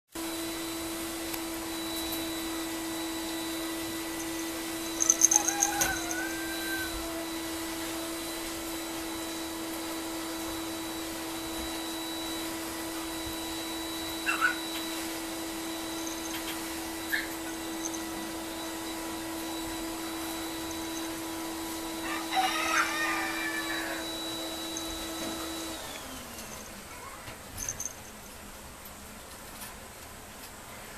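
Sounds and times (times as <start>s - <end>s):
steady machine hum: 0.2s - 29.2s
high-pitched squeaks: 1.9s - 7.4s, 14.0s - 15.1s, 15.7s - 25.7s.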